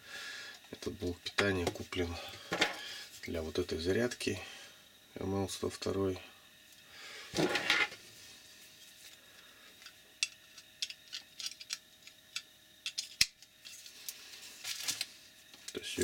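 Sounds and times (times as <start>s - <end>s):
plastic rustle: 13.7s - 15.9s.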